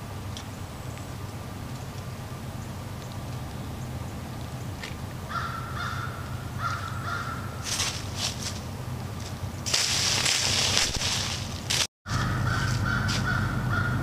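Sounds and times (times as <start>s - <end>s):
hooves crunching dry leaves: 0.0s - 14.0s
low hum: 0.0s - 14.0s
crow cawing: 5.3s - 7.8s, 12.1s - 14.0s.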